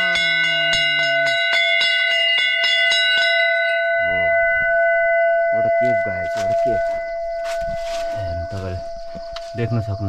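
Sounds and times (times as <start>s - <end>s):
bell struck rapidly by clapper: 0.0s - 4.2s.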